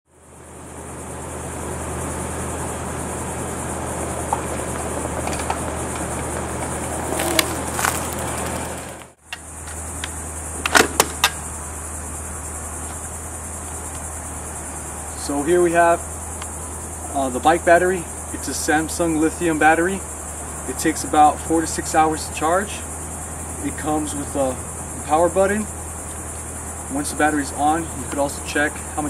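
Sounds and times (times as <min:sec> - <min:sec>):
high insect buzz: 0:00.1 - 0:29.0
bike rolling on dirt trail: 0:01.0 - 0:15.3.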